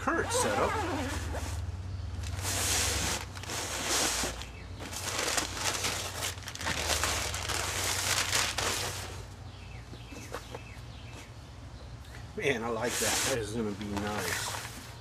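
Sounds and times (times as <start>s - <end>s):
paper crumpling and rustling: 2.2s - 9.2s.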